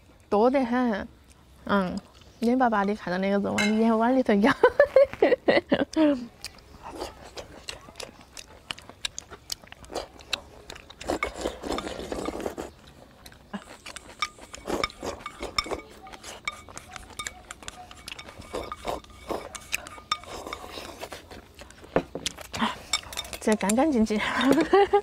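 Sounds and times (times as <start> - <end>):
slurping and chewing: 1.2 - 3.0, 5.9 - 25.0
chopsticks tapping ceramic bowl: 3.6 - 3.9, 13.9 - 21.0, 21.6 - 24.8.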